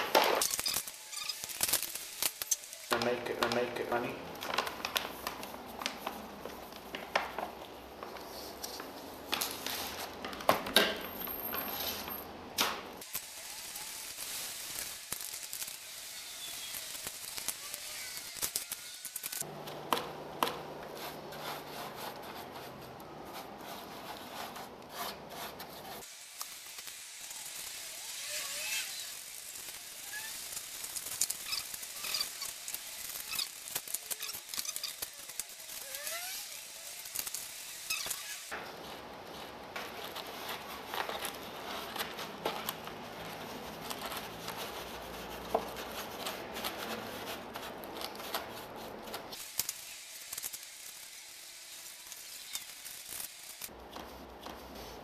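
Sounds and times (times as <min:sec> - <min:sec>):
brush scraping and rubbing: 0:20.7 - 0:26.1, 0:30.0 - 0:49.4.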